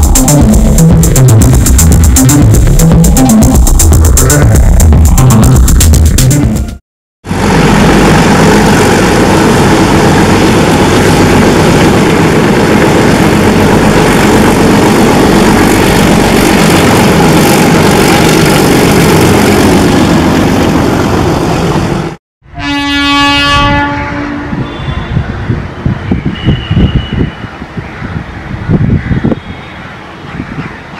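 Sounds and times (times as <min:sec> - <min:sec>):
diesel locomotive engine rumble: 0:00.0 - 0:30.6
locomotive horn: 0:22.5 - 0:25.3, 0:26.4 - 0:27.4.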